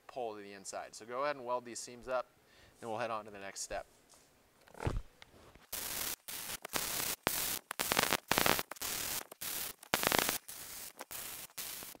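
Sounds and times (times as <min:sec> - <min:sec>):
welding arc crackling: 0:05.7 - 0:12.0.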